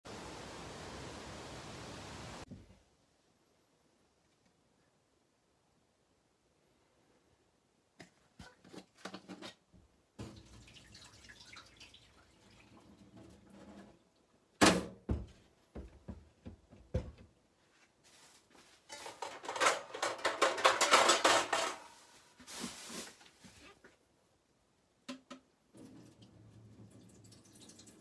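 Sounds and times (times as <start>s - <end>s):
rapid clatter and rustling: 18.7s - 23.6s.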